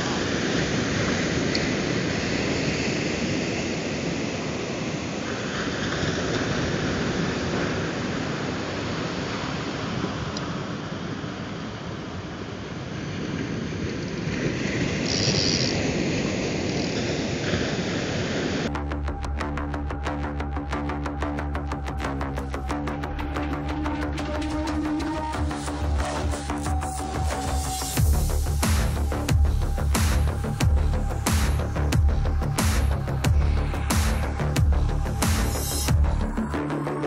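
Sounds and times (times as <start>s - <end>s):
surf breaking on beach: 0.0s - 18.7s.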